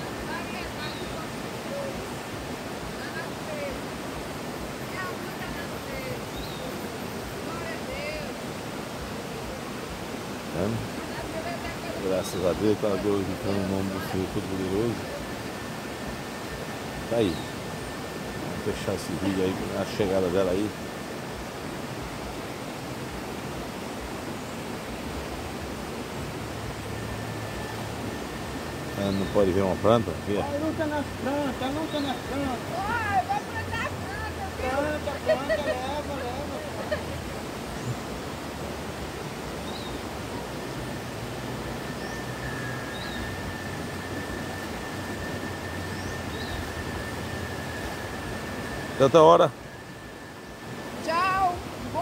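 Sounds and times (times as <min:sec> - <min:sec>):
running water hiss: 0:00.0 - 0:52.0
thin high tone: 0:10.5 - 0:23.1, 0:24.6 - 0:52.0.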